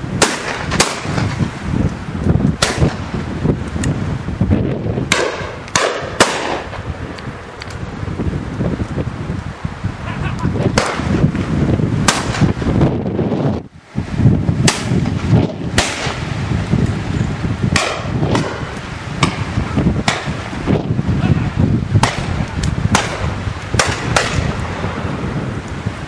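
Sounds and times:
wind on microphone: 0:00.0 - 0:26.0
shotgun shots: 0:00.2 - 0:01.4, 0:02.6 - 0:03.0, 0:05.1 - 0:06.8, 0:10.8 - 0:11.2, 0:12.0 - 0:12.5, 0:14.6 - 0:16.3, 0:17.7 - 0:20.4, 0:22.0 - 0:24.6.

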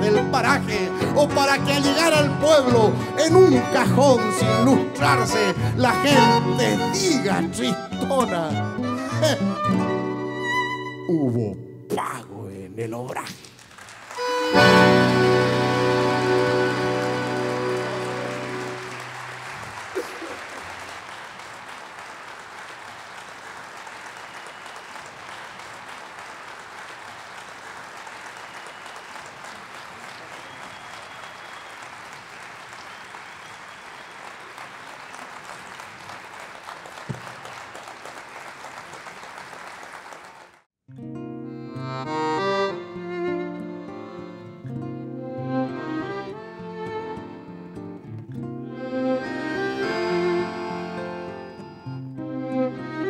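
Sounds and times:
accordion notes: 0:00.0 - 0:11.9, 0:14.1 - 0:22.0, 0:41.2 - 0:53.0
audience applauding: 0:13.4 - 0:40.7.

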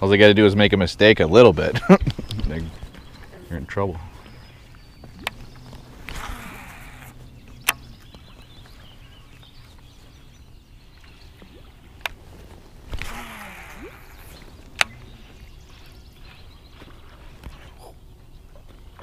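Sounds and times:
fishing line rushing out: 0:05.2 - 0:08.1, 0:12.7 - 0:15.4.

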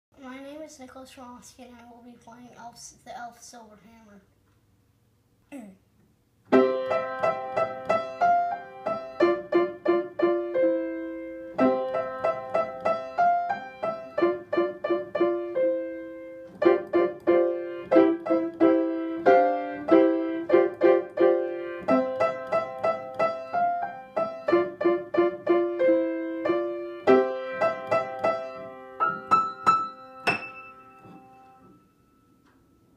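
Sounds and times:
piano melody: 0:06.5 - 0:32.9.

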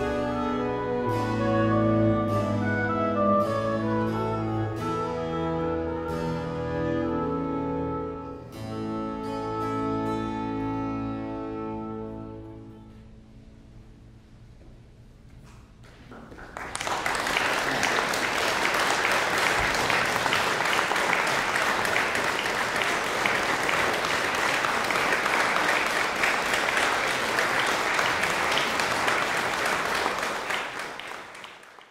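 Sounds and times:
audience applauding: 0:15.9 - 0:31.9.

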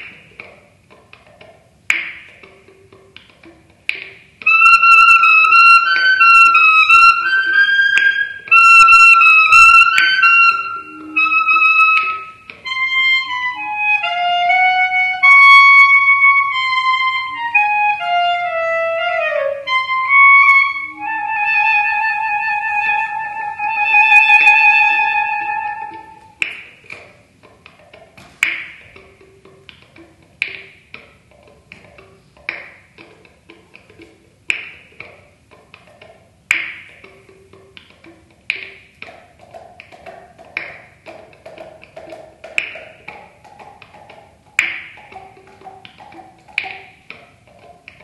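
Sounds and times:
sharp dry taps and clicks: 0:00.0 - 0:04.5, 0:26.4 - 0:48.0
clarinet long tone: 0:04.4 - 0:26.4.

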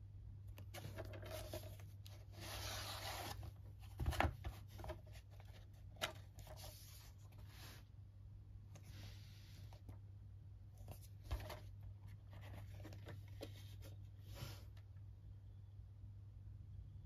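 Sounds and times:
cardboard packaging rustling: 0:00.6 - 0:07.8.

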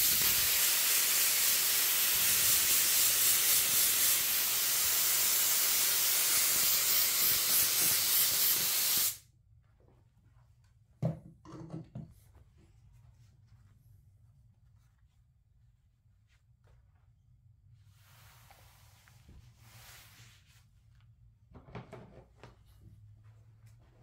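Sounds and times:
air spray gun hissing: 0:00.0 - 0:09.2.

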